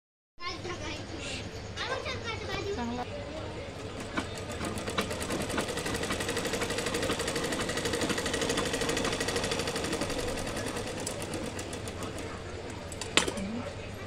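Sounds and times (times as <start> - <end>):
sewing machine stitching: 3.6 - 13.4.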